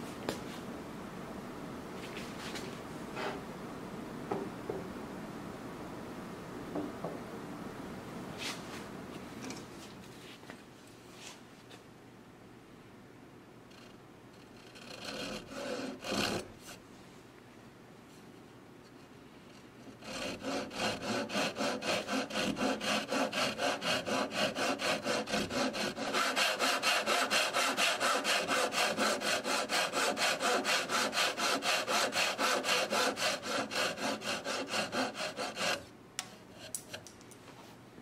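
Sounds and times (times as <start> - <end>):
file rasping on wood: 14.6 - 16.5, 19.9 - 35.8.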